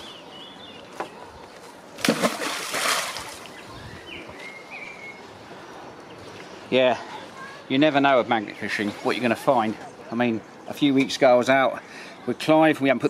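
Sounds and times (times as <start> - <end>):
magnet splashing into river: 2.0 - 3.5.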